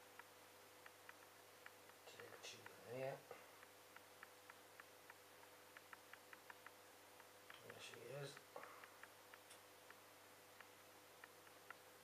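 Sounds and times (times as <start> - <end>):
faint room hum: 0.0 - 12.0
light ticks of handled containers: 0.2 - 10.0.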